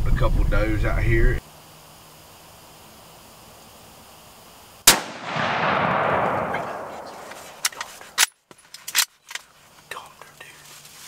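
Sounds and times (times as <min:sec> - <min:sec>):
rifle shot echoing: 0:04.8 - 0:07.7.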